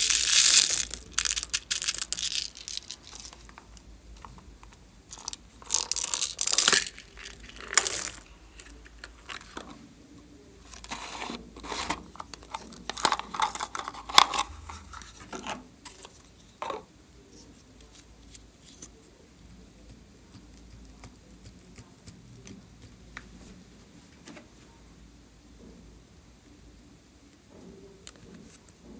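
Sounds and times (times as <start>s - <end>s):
plastic containers crinkling: 0.0s - 4.4s, 5.1s - 9.8s, 10.7s - 16.8s.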